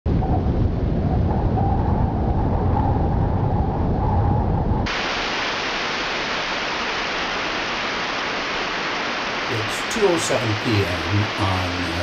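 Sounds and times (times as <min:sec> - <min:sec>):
low rumbling noise: 0:00.1 - 0:12.0
bright hiss: 0:04.9 - 0:12.0.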